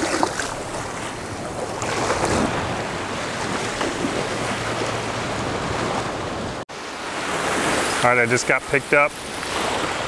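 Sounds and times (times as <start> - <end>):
wind on microphone: 0.0 - 6.6
surf waves washing on sand: 0.0 - 10.0.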